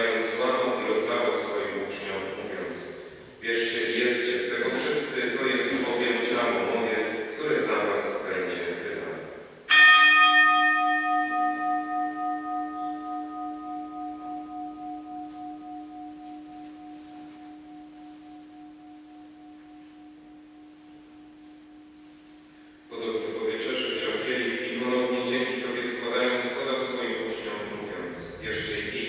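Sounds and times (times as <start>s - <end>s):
bell ringing: 9.7s - 22.7s.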